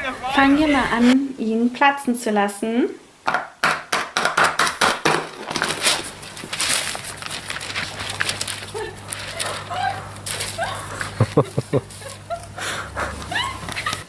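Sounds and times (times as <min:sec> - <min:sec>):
papier mache shell crackling: 0:04.6 - 0:14.0
rustling: 0:05.2 - 0:14.0
steady low hum: 0:05.8 - 0:14.0.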